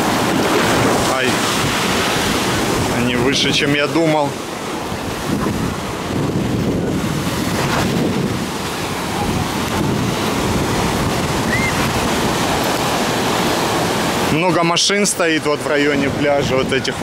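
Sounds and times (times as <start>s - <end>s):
wind rumbling on microphone: 0.0s - 14.4s, 15.8s - 17.0s
surf breaking on gravel shore: 0.0s - 17.0s.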